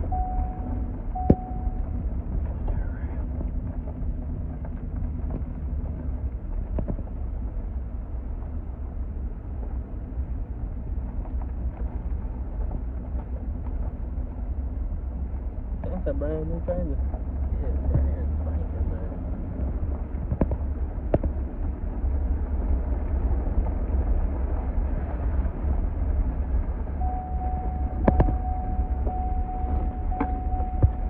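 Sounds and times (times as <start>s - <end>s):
short beep: 0.0s - 1.9s, 27.0s - 31.0s
vehicle engine and tyre rumble: 0.0s - 31.0s.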